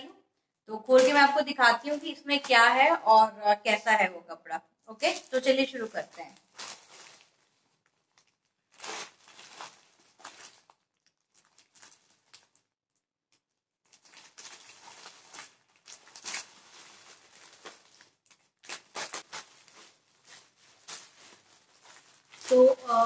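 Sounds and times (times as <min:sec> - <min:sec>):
plastic bag crinkling: 0:05.0 - 0:23.0.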